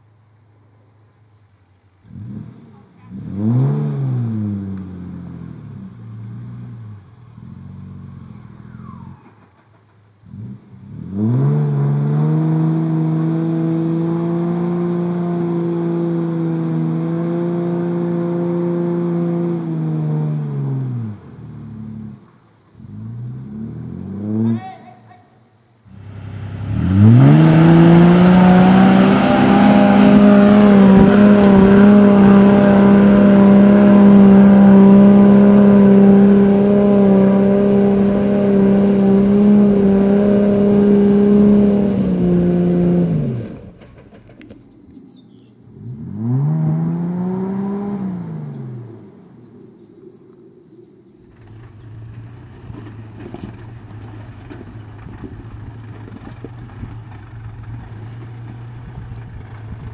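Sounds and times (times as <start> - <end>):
car engine revving: 2.0 - 9.4, 10.2 - 24.6, 25.9 - 44.6, 45.7 - 49.5.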